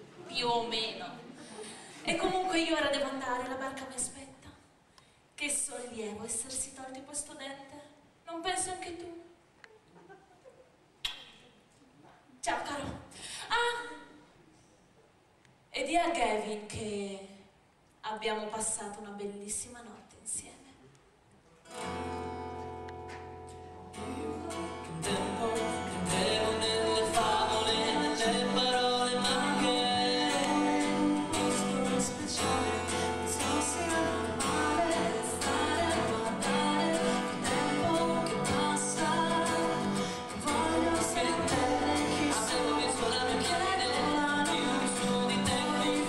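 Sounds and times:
person singing: 24.0 - 46.0.

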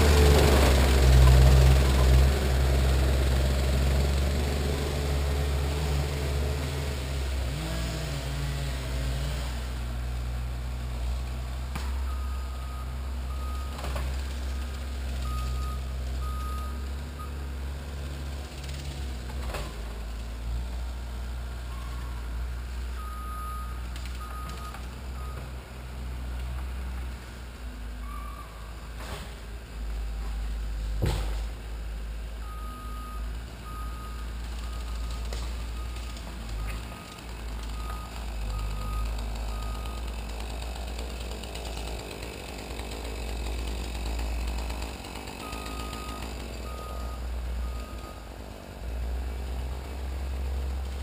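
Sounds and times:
diesel engine running: 0.0 - 51.0
reversing alarm beeps: 23.0 - 25.5, 28.0 - 28.6, 45.5 - 48.2.

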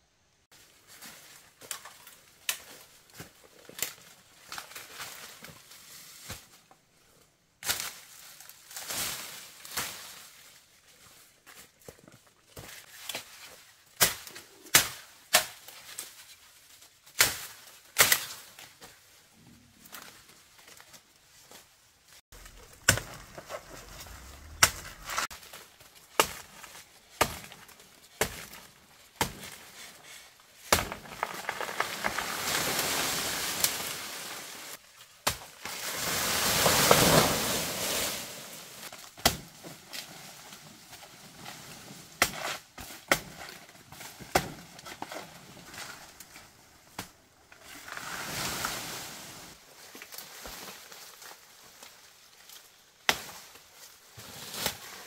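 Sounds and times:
rustling noise: 19.3 - 27.1
sharp knocks and chops: 22.4 - 25.4.

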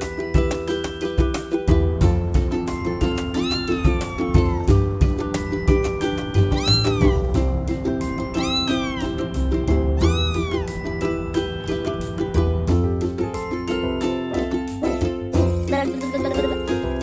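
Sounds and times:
background music with steady beat: 0.0 - 17.0
kitten meowing: 3.3 - 4.7, 6.4 - 7.4, 8.3 - 9.4, 10.0 - 10.9.

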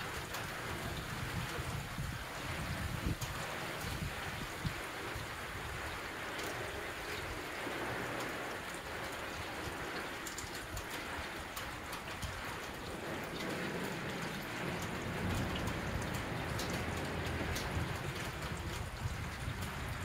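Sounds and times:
rain hiss: 0.0 - 20.0
drip ticks: 6.3 - 7.4, 8.1 - 20.0.

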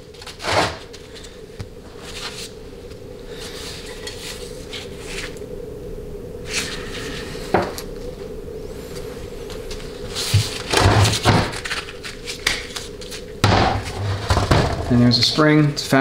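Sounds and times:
low hum: 0.0 - 15.9.

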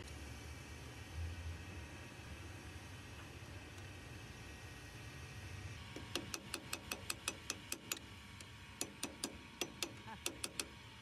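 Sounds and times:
ratchet clicking: 5.9 - 10.8.

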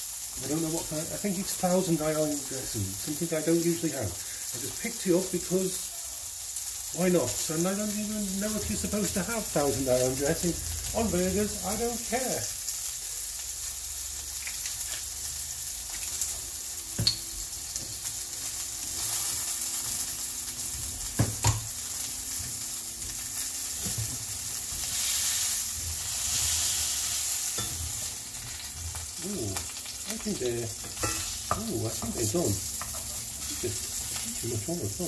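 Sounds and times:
burgers sizzling in a skillet: 0.0 - 35.0
spatula scraping skillet: 22.3 - 34.4.

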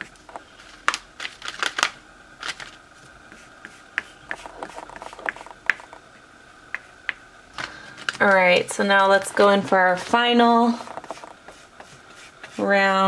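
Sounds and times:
faint high hum: 0.0 - 13.0
paintbrush tapping and scratching: 3.3 - 6.0, 6.7 - 7.2, 9.2 - 13.0.

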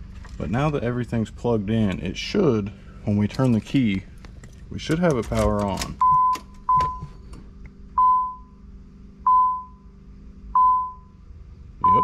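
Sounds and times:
low steady hum: 0.0 - 12.0
dashboard warning chime dings: 6.0 - 7.2, 8.0 - 8.6, 9.2 - 9.9, 10.6 - 11.2.

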